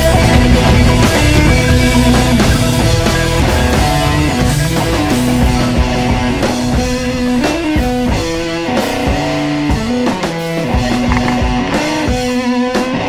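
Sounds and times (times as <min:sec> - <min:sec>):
guitar rock music: 0:00.0 - 0:13.0
drum hits: 0:05.3 - 0:11.6.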